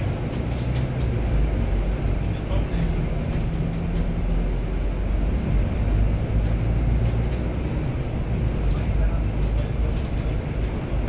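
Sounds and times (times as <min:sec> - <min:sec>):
bus engine and road noise: 0:00.0 - 0:11.0
faint rattles: 0:06.2 - 0:11.0.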